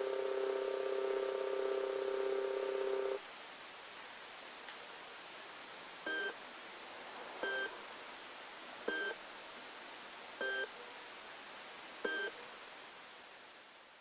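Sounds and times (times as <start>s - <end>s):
steady hiss: 0.0s - 10.4s.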